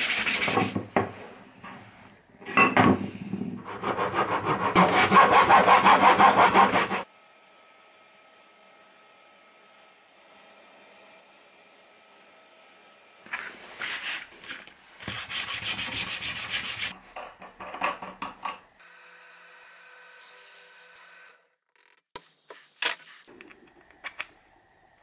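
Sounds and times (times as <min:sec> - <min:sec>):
wood being rubbed by hand: 0:00.0 - 0:00.8, 0:03.6 - 0:07.0, 0:13.3 - 0:17.0.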